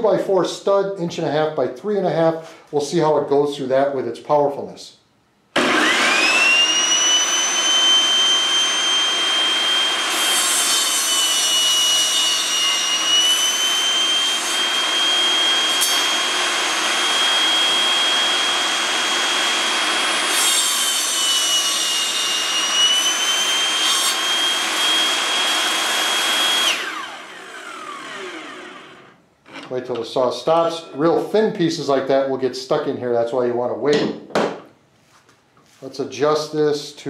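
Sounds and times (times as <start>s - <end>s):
saw blade spinning down: 5.6s - 29.7s
saw blade cutting wood: 5.6s - 29.8s
table saw whining: 5.6s - 31.0s.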